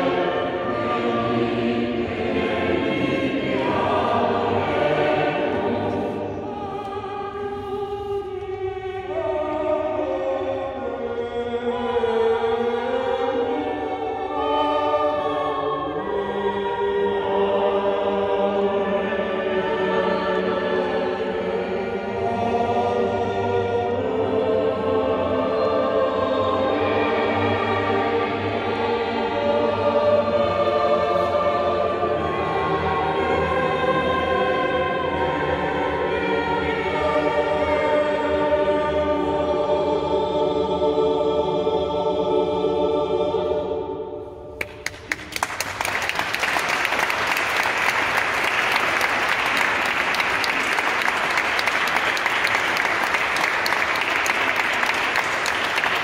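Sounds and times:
mixed choir singing: 0.0 - 44.5, 45.8 - 56.0
audience applause: 44.6 - 56.0.

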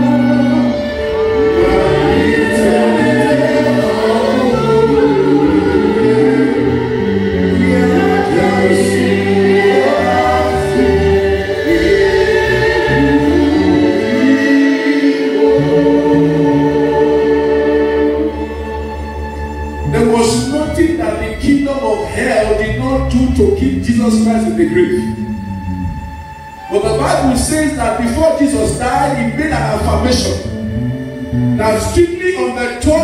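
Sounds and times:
voices singing together: 0.0 - 19.6
held low instrumental notes: 0.0 - 33.0.

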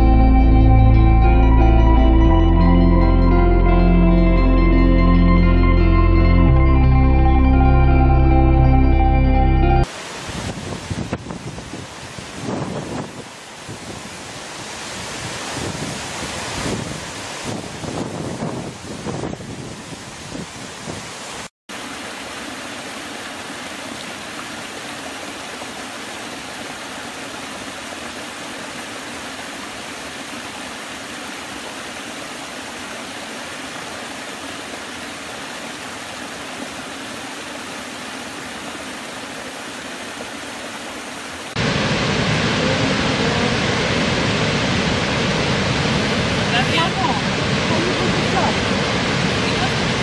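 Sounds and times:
large waterfall deep rush: 9.8 - 50.0
river pouring over waterfall: 9.8 - 50.0
small cascade rushing: 9.8 - 50.0.

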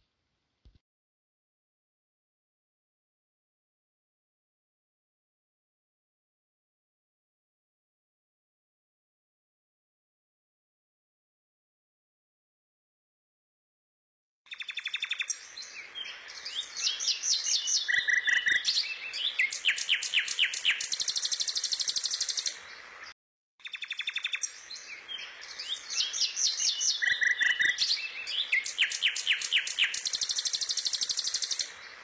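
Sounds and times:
songbirds chirping and trilling: 14.5 - 32.0.

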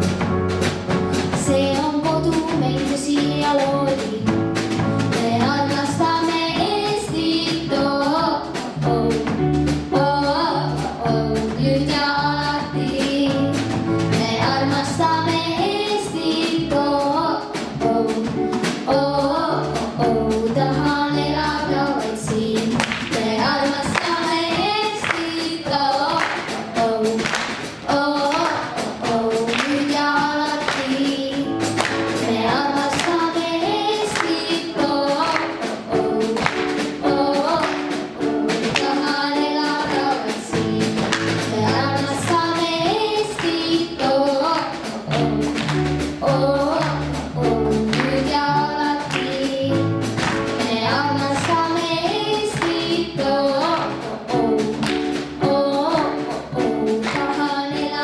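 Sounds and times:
electric bass guitar: 0.0 - 24.8, 40.5 - 58.0
drum kit: 0.0 - 58.0
girl singing pop song: 1.3 - 4.4, 5.1 - 58.0
children singing along: 5.1 - 58.0.

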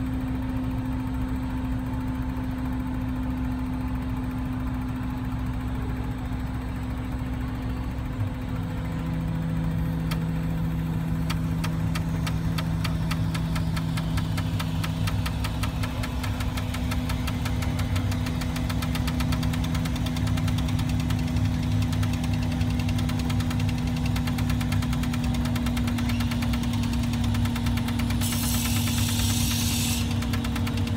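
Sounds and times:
crane engine humming: 0.0 - 30.9
fast regular ticking: 10.0 - 30.9.

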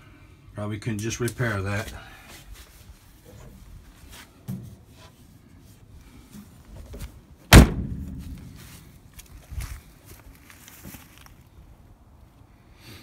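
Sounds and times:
steel car door slamming: 7.5 - 8.6.

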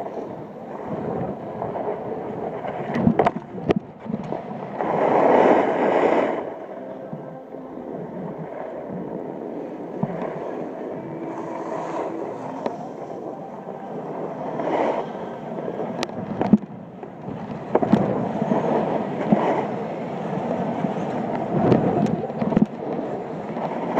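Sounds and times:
snowboard scraping over snow: 4.8 - 6.5, 11.3 - 12.5.

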